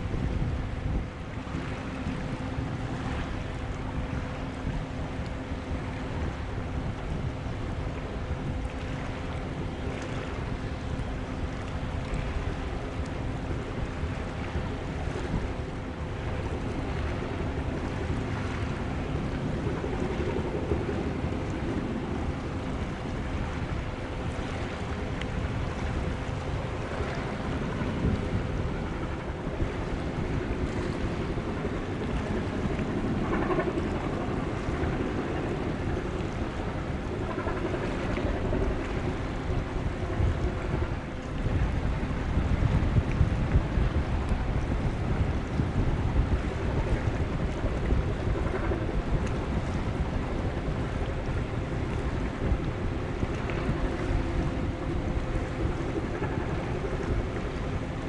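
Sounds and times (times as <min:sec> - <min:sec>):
waves washing: 0:00.0 - 0:58.0
wind buffeting microphone: 0:00.0 - 0:58.0.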